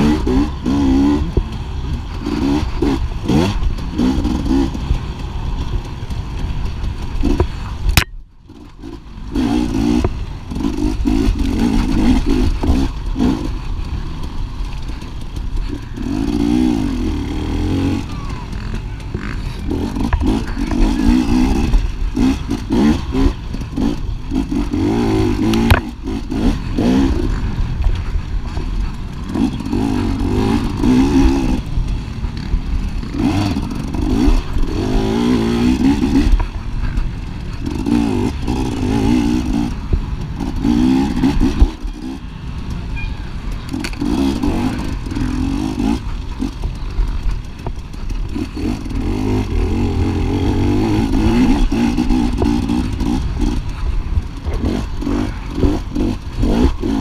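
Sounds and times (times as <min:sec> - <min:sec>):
motorcycle engine revving: 0:00.0 - 0:57.0
clatter and knocks from trail: 0:01.2 - 0:16.6, 0:18.5 - 0:57.0.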